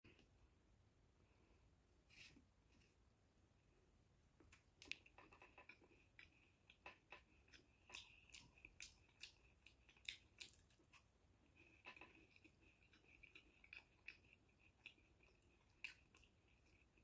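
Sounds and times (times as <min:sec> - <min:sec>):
crunchy chewing: 0:04.5 - 0:17.0.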